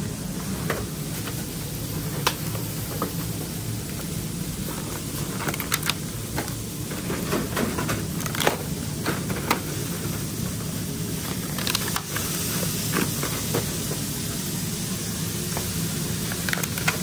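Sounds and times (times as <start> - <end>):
low kitchen hum: 0.0 - 17.0
cardboard boxes and paper bags rustling: 0.4 - 14.0.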